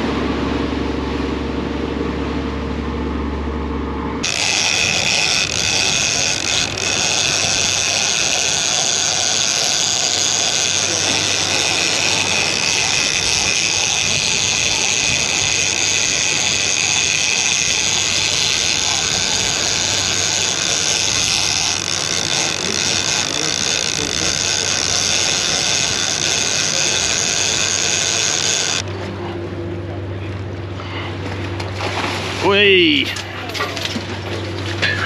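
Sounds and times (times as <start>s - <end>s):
fishing reel buzzing: 4.2s - 28.9s.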